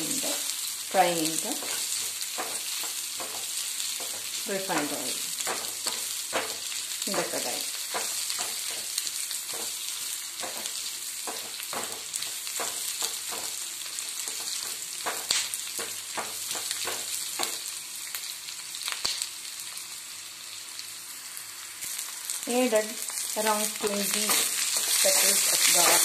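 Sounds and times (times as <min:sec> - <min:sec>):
onion sizzling in oil: 0:00.0 - 0:26.0
spatula scraping pan: 0:23.6 - 0:26.0.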